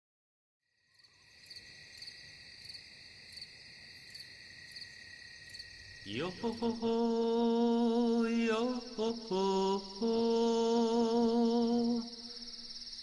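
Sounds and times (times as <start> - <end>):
crickets chirping: 0.7 - 13.0
long sung note: 6.1 - 12.3.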